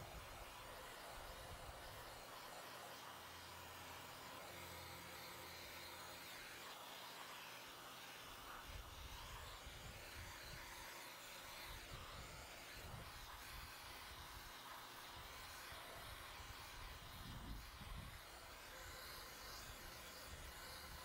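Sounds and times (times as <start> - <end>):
wind rumbling on microphone: 16.8 - 18.2.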